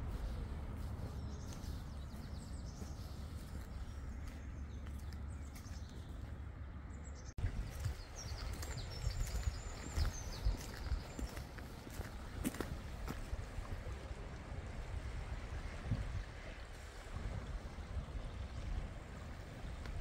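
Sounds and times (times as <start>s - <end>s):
small birds chirping: 0.0s - 12.7s
steady low rumble: 0.0s - 20.0s.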